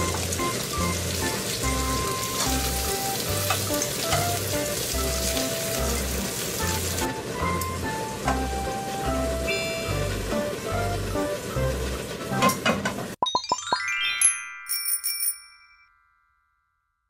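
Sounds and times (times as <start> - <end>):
meat sizzling in a frying pan: 0.0 - 7.1.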